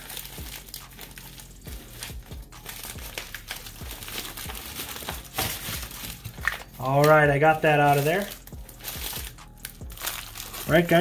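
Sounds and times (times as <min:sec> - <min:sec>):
paper rustling and crinkling: 0:00.0 - 0:11.0.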